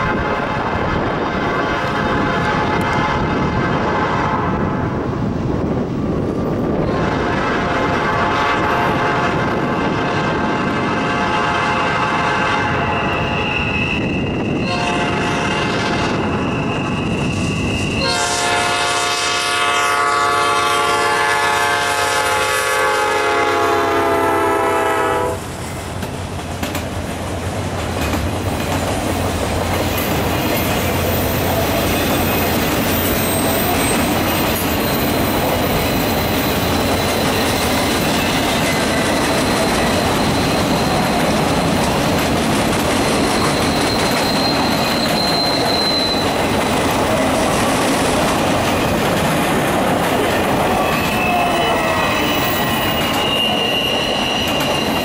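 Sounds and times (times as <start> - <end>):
freight train wheels rumbling: 0.0 - 55.0
locomotive air horn: 1.6 - 4.7, 6.9 - 13.4, 14.6 - 16.4, 18.0 - 25.4, 50.8 - 55.0.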